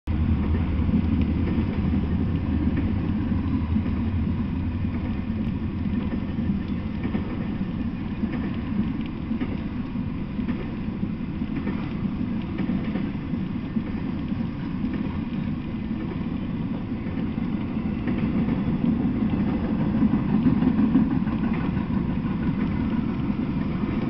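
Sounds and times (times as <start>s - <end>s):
freight train wheels rumbling on rails: 0.0s - 24.0s
light clicks and clacks: 4.8s - 24.0s.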